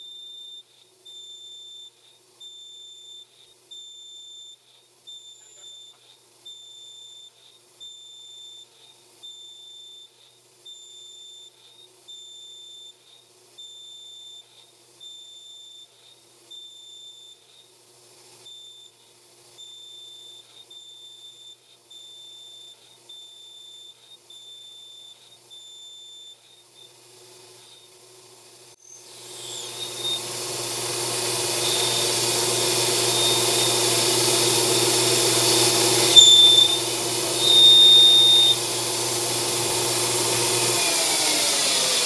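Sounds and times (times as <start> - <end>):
high-pitched electronic beeps: 36.0 - 38.6.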